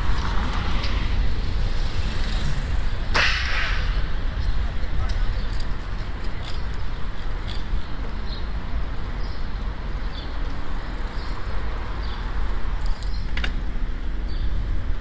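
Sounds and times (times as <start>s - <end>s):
passing cars: 0.0s - 15.0s
road and tyre noise: 0.0s - 15.0s.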